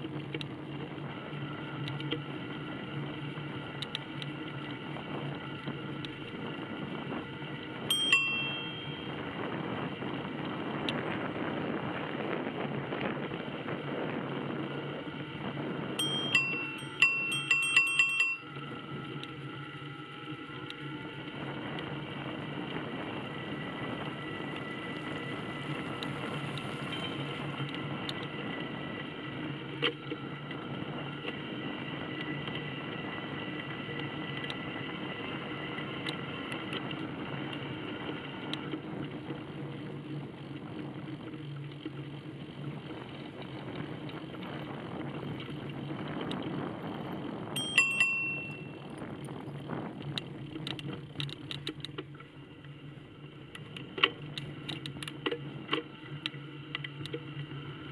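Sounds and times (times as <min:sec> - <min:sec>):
bicycle riding hum: 0:00.0 - 0:57.9
bicycle bell ringing: 0:07.9 - 0:09.4, 0:16.0 - 0:18.8, 0:47.6 - 0:49.0.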